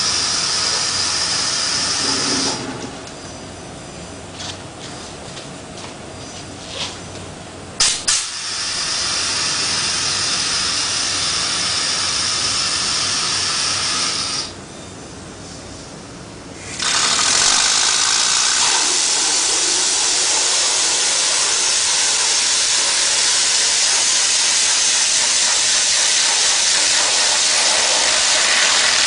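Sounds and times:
air motor hissing: 0.0 - 3.5, 7.8 - 29.0.

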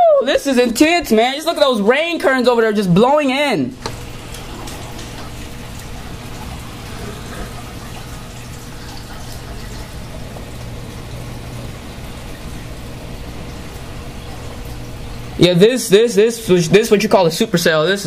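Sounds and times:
heavy rain: 3.9 - 12.0.

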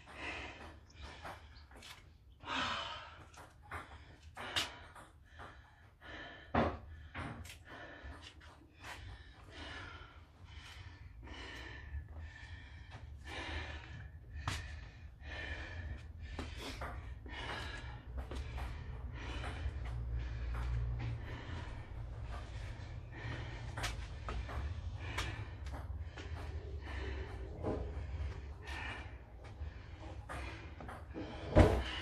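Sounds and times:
woman panting: 0.0 - 1.6, 2.3 - 32.0.

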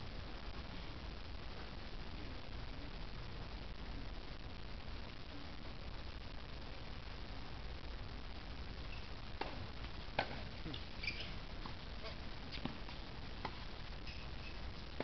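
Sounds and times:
sneaker squeaks: 10.7 - 11.4.

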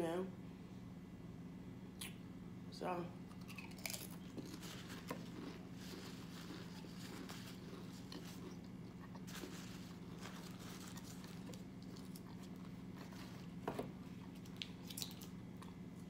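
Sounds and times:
chewing food with mouth closed: 3.3 - 16.0.

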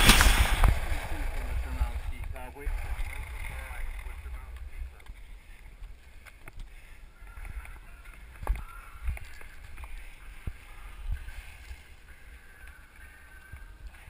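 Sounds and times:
low rumble: 0.0 - 6.0.

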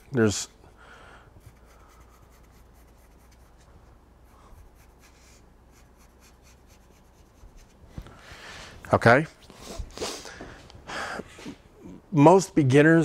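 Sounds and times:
pencil scratching on wood: 1.4 - 7.8.

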